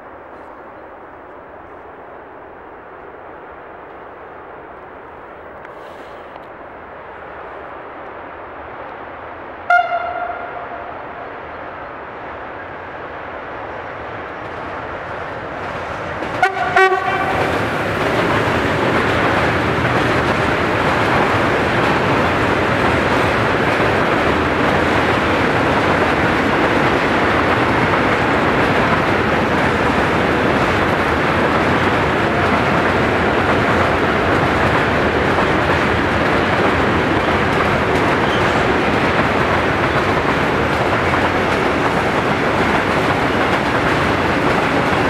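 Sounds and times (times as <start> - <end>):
electric locomotive passing: 0.0 - 45.0
train wagons rolling past: 9.6 - 45.0
train horn blasts: 9.7 - 11.3, 16.4 - 17.5.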